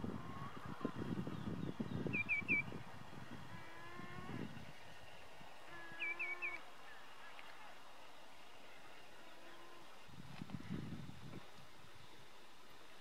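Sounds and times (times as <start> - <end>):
shorebird whistled call: 2.1 - 2.7, 6.0 - 6.6.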